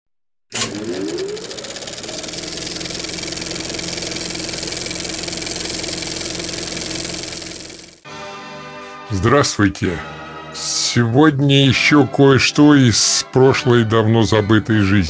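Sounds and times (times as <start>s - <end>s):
film projector motor whine: 0.6s - 8.0s
film projector rattle: 0.6s - 8.0s.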